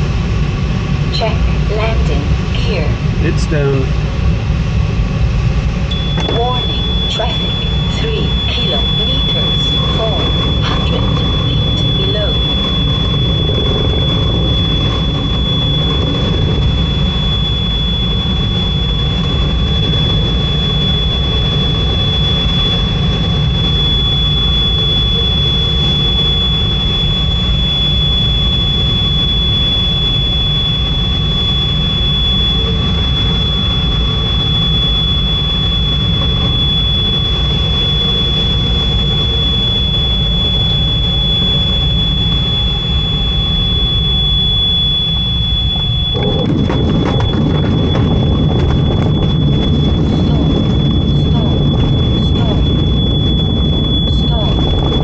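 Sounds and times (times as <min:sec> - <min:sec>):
high-pitched electronic tone: 0:05.9 - 0:55.0.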